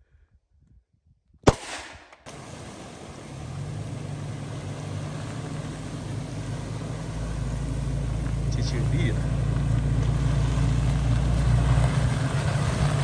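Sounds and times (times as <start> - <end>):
handgun shot: 1.4 - 2.4
pickup truck engine running: 2.3 - 13.0.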